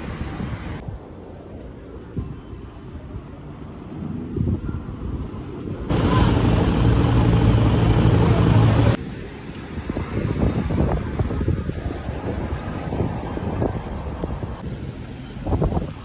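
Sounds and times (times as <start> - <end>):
wind rumbling on microphone: 0.0 - 2.2, 9.8 - 16.0
street traffic noise: 0.0 - 16.0
vehicle engine running: 5.9 - 9.0.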